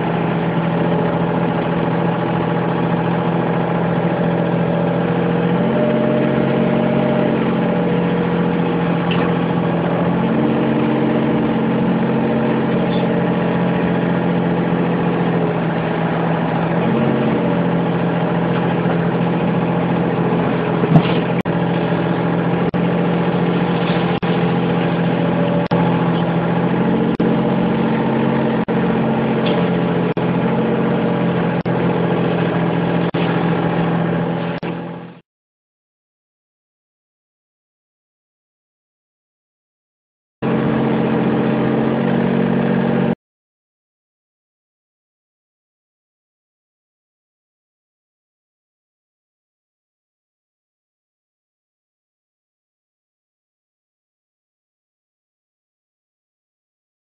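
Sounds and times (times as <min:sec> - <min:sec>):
excavator diesel engine running: 0:00.0 - 0:35.2, 0:40.4 - 0:43.2.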